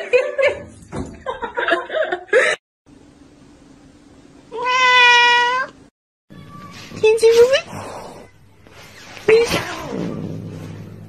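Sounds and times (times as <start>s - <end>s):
cat meowing: 4.6s - 7.0s.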